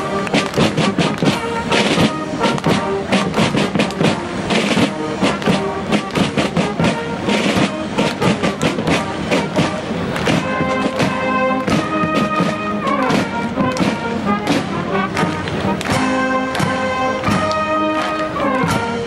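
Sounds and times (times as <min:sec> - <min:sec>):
military band playing a march: 0:00.0 - 0:19.0.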